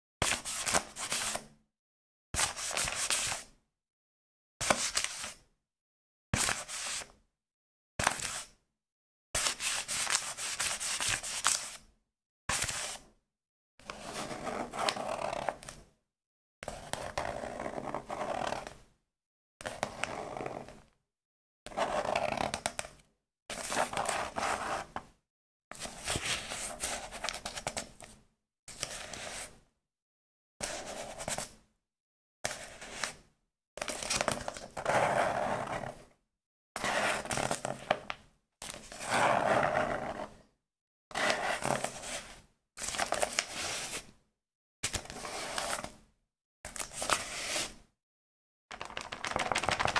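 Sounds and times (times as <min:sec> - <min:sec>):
book handling scrapes: 0:47.0 - 0:47.8.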